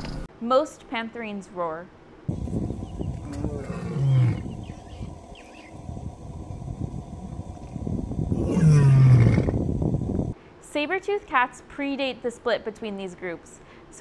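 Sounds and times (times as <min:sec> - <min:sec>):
lion roaring: 0:02.3 - 0:10.2.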